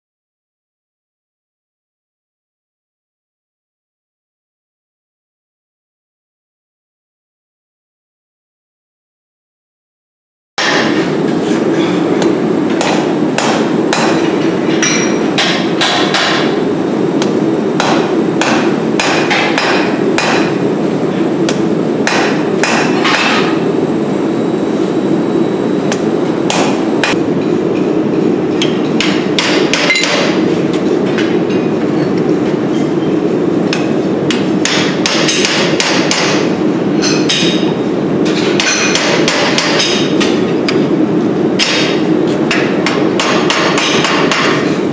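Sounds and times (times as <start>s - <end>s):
hammer on hot steel: 10.6s - 16.6s, 17.2s - 20.7s, 21.4s - 23.6s, 25.9s - 27.5s, 28.6s - 30.5s, 33.7s - 40.9s, 41.6s - 44.8s.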